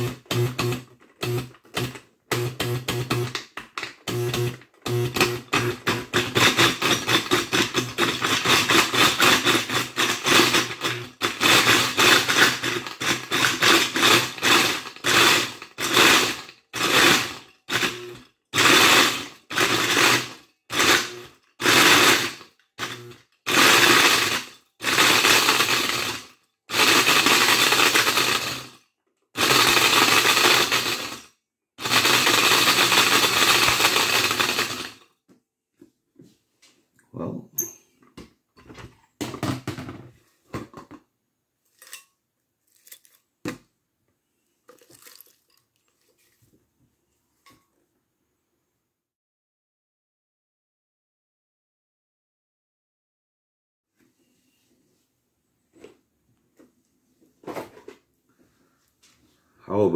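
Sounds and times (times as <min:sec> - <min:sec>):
blender grinding pencils: 0:00.0 - 0:28.8, 0:29.4 - 0:35.1, 0:44.7 - 0:46.4.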